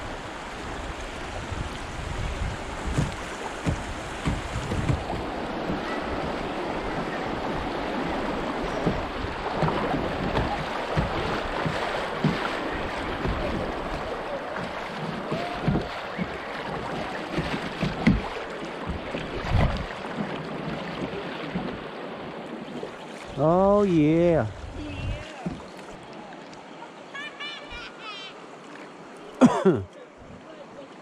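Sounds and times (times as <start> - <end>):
river water rushing and lapping: 0.0 - 31.0
low thumps: 2.8 - 6.4.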